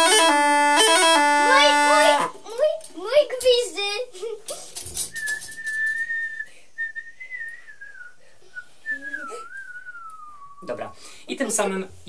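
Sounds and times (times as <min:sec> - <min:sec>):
bagpipe high note: 0:00.0 - 0:02.4.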